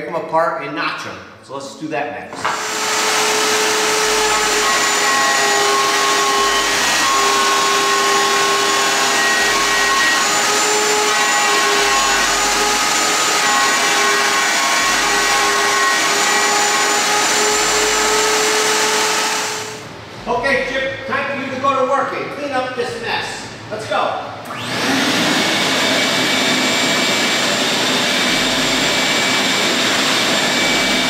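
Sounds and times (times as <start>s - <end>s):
router whining: 2.3s - 19.8s, 24.5s - 31.0s
vacuum running: 2.3s - 20.4s, 24.4s - 31.0s.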